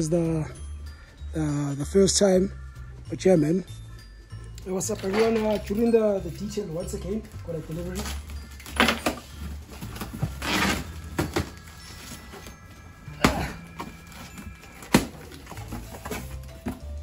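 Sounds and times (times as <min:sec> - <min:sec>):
packing tape ripping: 0:10.0 - 0:11.6.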